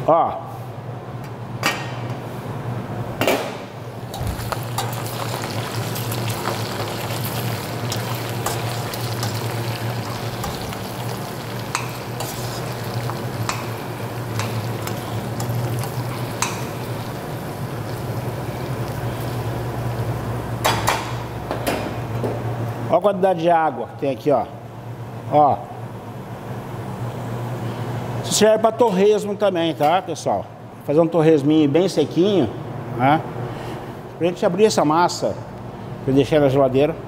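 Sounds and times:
bacon sizzling in saucepan: 4.3 - 20.2.

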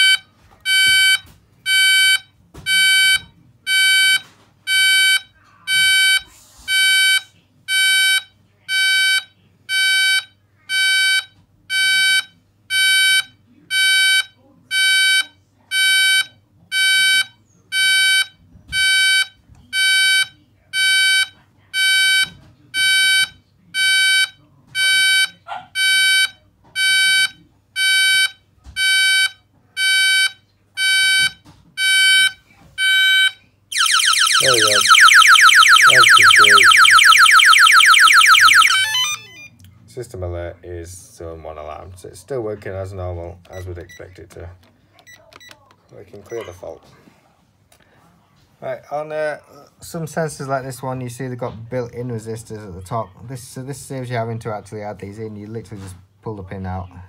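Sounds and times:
high-pitched alarm beeps: 30.2 - 39.5.

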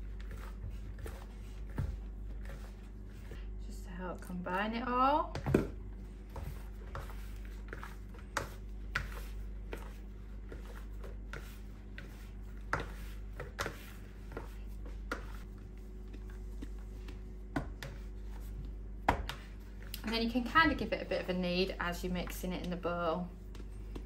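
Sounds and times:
dough scraping in plastic bowl: 0.0 - 3.4, 5.9 - 21.0
low steady hum: 0.0 - 24.0.

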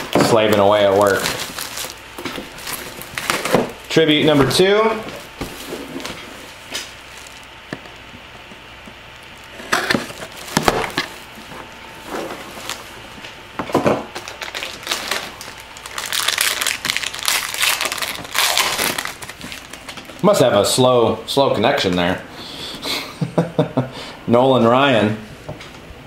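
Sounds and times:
plastic shrink wrap crinkling: 0.0 - 13.2, 14.1 - 20.5.

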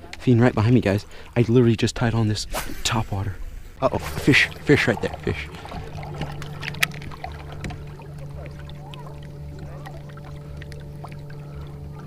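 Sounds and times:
electric trolling motor humming: 3.8 - 12.0.

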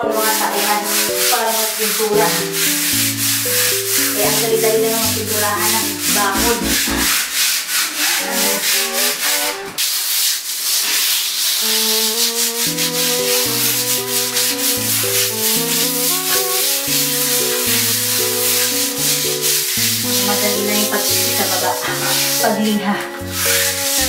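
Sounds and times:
background music: 0.0 - 7.2, 12.1 - 24.0
sanding block on wall: 0.0 - 24.0.

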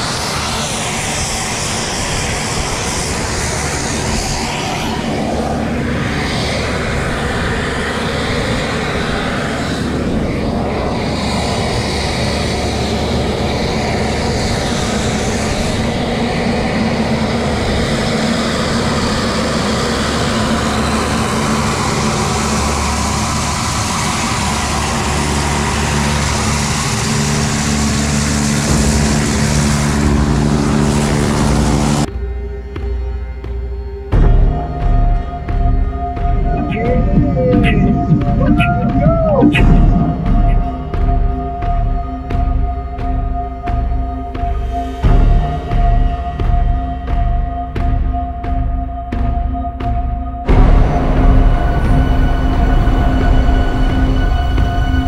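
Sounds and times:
propeller plane engine droning: 0.0 - 32.1.

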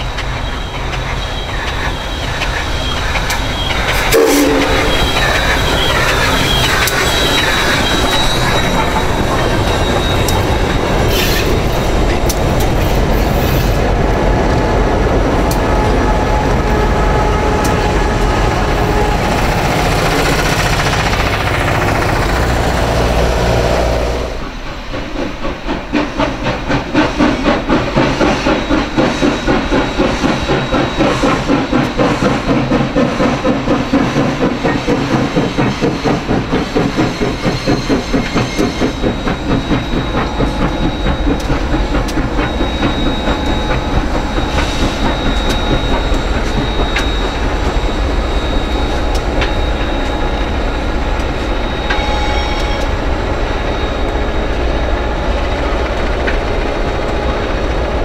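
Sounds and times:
steam hiss: 0.0 - 14.3, 16.8 - 58.0
steam locomotive exhaust chuffs: 0.0 - 58.0.

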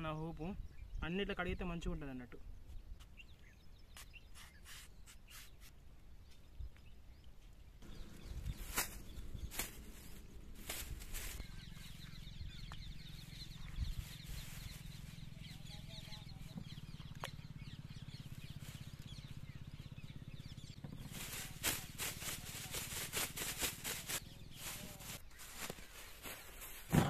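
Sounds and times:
steady low hum: 7.8 - 22.7.

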